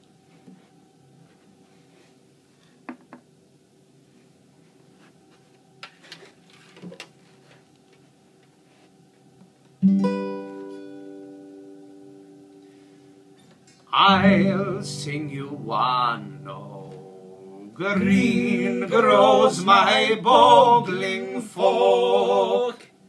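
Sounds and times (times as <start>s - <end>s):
guitar handling knocks and rustles: 5.0s - 8.1s
acoustic guitar chord ringing: 9.8s - 21.6s.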